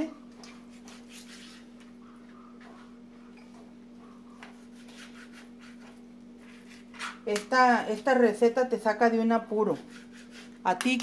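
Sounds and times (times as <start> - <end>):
steady low hum: 0.0 - 11.0
knife cutting meat on board: 4.4 - 7.1.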